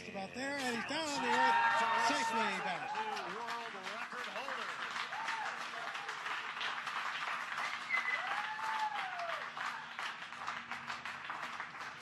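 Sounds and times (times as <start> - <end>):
people clapping and cheering: 0.0 - 12.0
long whoop: 8.0 - 9.5.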